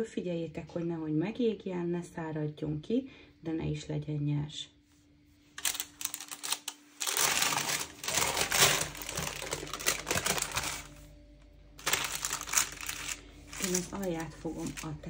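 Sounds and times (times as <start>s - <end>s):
baking paper crinkling: 5.6s - 11.1s, 11.8s - 15.0s.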